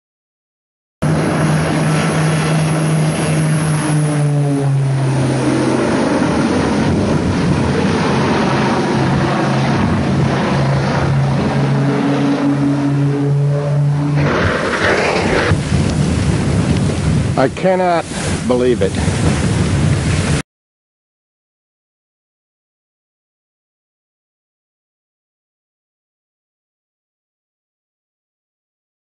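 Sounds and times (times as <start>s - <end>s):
aircraft engine drone: 1.0s - 20.4s.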